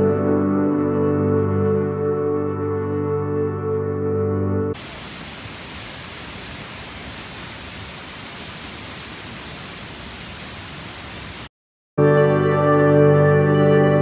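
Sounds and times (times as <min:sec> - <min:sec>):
waterfall rushing: 0:04.8 - 0:11.5.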